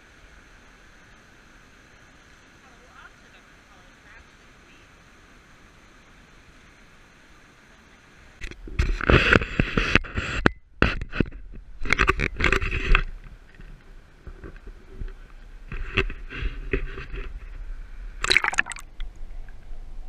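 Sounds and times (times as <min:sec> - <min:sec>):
water splashing against camera: 0:08.4 - 0:19.7.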